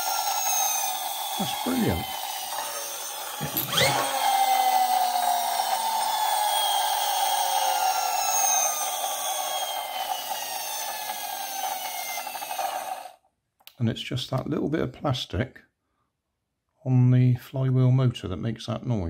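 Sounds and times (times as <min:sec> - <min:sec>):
plastic noisemaker buzzing: 0:00.0 - 0:13.2
toy car flywheel whirring: 0:00.0 - 0:13.2.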